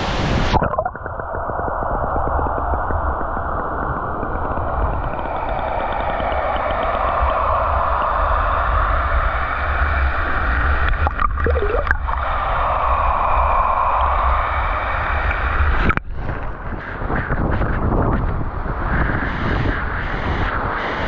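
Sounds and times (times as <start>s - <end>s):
underwater waterfall rush: 0.0s - 21.0s
bubbles gurgling: 0.4s - 12.6s.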